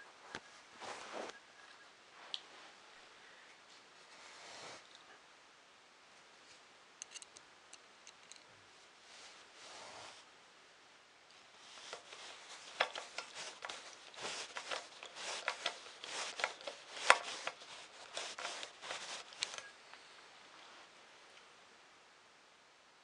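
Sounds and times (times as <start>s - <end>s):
metal parts clicking and scraping: 7.0s - 8.5s, 11.7s - 19.7s.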